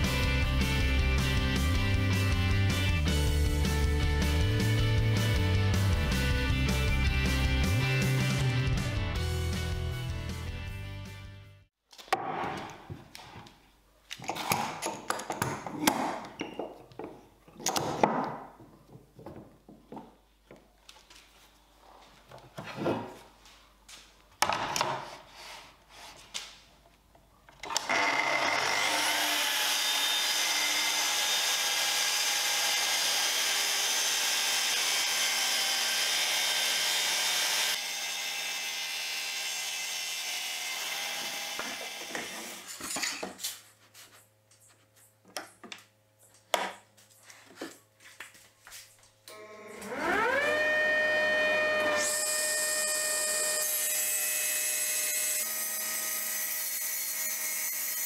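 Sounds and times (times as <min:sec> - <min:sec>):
track saw cutting wood: 0:27.6 - 0:42.7, 0:49.3 - 0:58.0.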